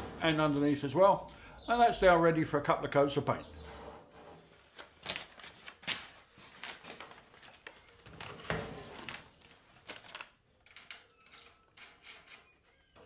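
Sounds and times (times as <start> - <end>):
paper crackling: 4.6 - 10.9.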